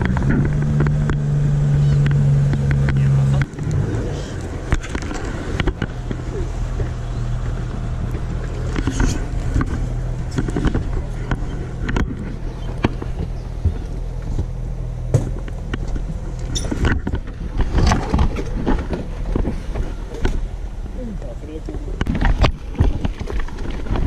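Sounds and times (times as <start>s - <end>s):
boat engine low hum: 0.0s - 24.0s.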